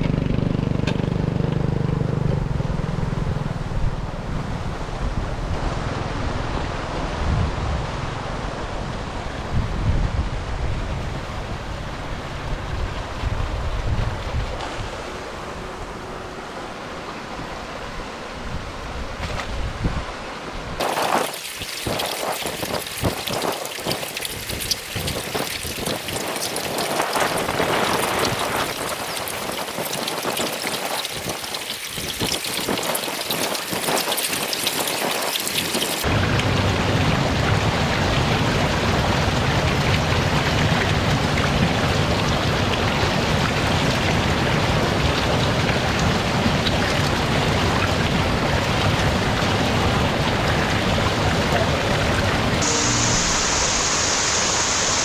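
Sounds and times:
water pouring into trough: 0:20.8 - 0:36.2.

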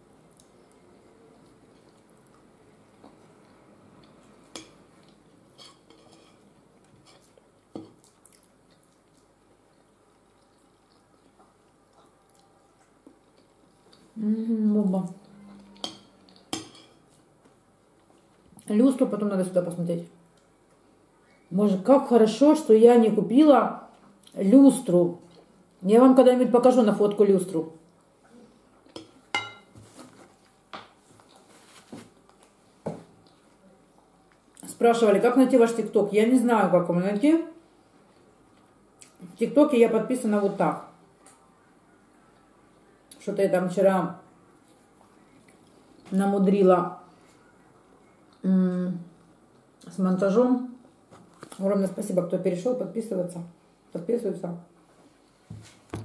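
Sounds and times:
spoon tapping and scraping: 0:15.8 - 0:17.0, 0:28.9 - 0:29.7
metal spoon clinking ceramic bowl: 0:29.0 - 0:29.7.

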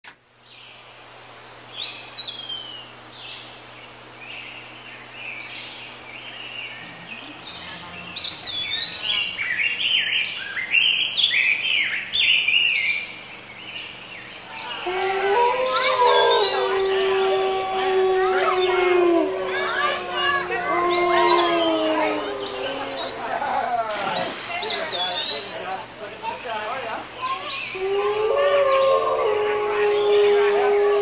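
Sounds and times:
faint low hum: 0:00.4 - 0:31.0
birds chirping and whistling: 0:04.8 - 0:26.0, 0:27.2 - 0:30.8.

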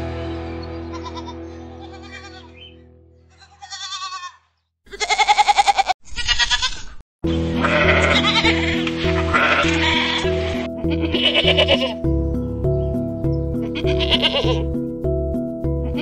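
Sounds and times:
background music: 0:00.0 - 0:02.7, 0:07.2 - 0:16.0
goats bleating: 0:00.9 - 0:02.7, 0:03.3 - 0:12.0, 0:13.6 - 0:14.7.

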